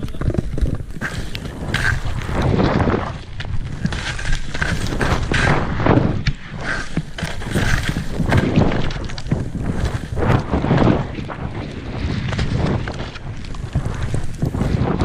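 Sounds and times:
wind buffeting microphone: 0.0s - 15.0s
skis hissing through powder snow: 1.0s - 2.4s, 6.6s - 8.6s.

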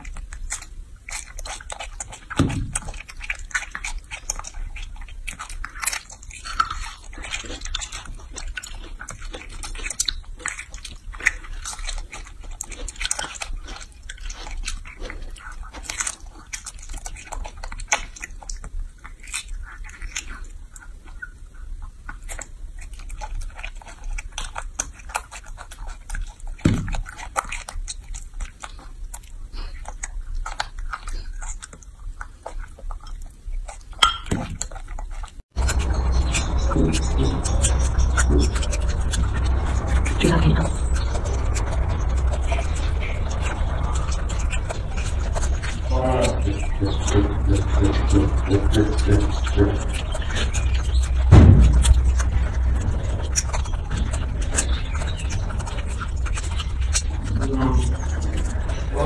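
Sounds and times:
monkey chewing wet smacking: 0.0s - 59.0s
low steady hum: 35.5s - 59.0s.

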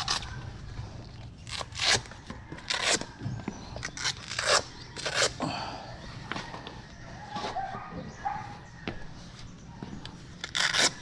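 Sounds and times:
velcro straps ripping open: 0.0s - 0.4s, 1.4s - 3.2s, 3.8s - 5.4s, 10.4s - 11.0s.

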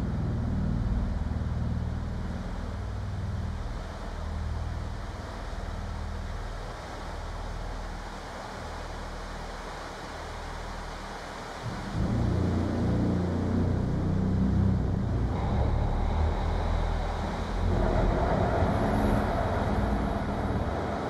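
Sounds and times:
electronic drone music: 11.7s - 21.0s.

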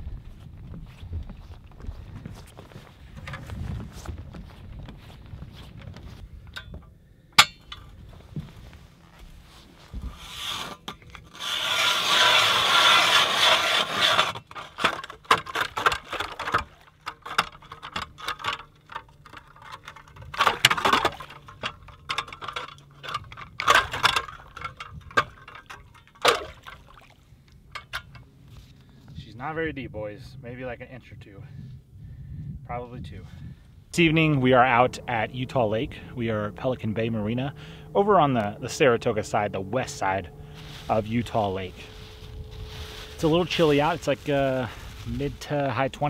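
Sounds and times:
ice auger grinding through ice: 10.0s - 26.6s.

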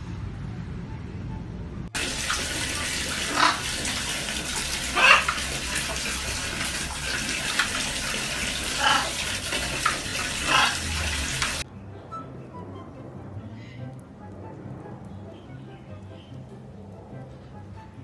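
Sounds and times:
water splashing into bucket: 2.0s - 11.6s.

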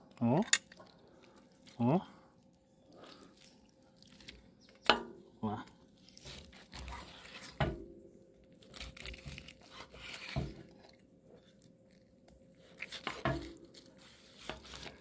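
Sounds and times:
knife slicing through meat crust: 8.6s - 10.6s, 12.6s - 15.0s.

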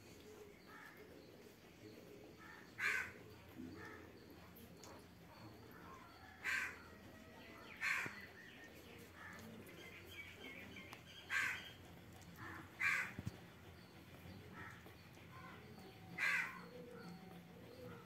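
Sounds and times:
crow cawing: 2.4s - 3.2s, 6.3s - 6.9s, 7.8s - 8.2s, 11.3s - 11.7s, 12.4s - 13.2s, 16.2s - 16.8s.

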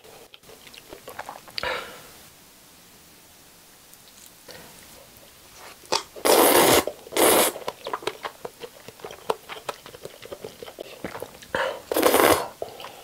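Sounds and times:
wet chewing: 5.9s - 13.0s
slurping noodles: 6.2s - 7.7s, 11.9s - 13.0s.

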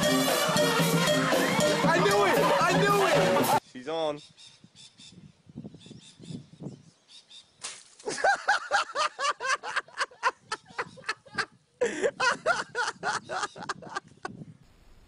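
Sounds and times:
person laughing hard: 8.1s - 14.4s.

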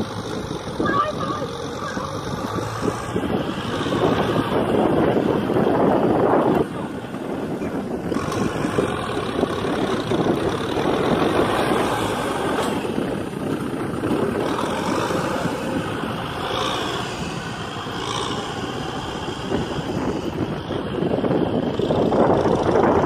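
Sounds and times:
tractor engine running: 0.0s - 23.0s.

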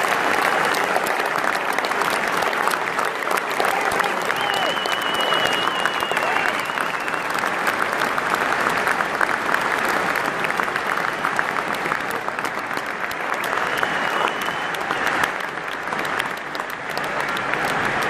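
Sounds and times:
stadium crowd applauding and cheering: 0.0s - 18.0s
high whistle: 4.3s - 7.4s, 13.5s - 15.0s.

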